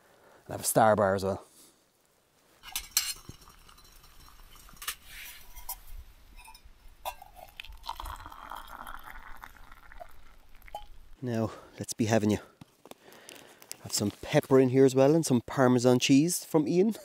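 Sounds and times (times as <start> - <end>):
metal lid clinking on pot: 2.6 - 5.8
water pouring into metal mug: 2.6 - 5.8, 7.1 - 11.2.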